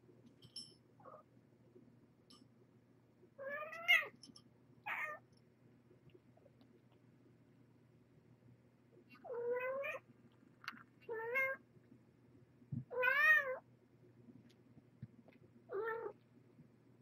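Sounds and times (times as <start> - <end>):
cat meowing: 3.4 - 4.2, 4.9 - 5.2, 9.2 - 10.0, 11.1 - 11.6, 12.9 - 13.6, 15.7 - 16.2.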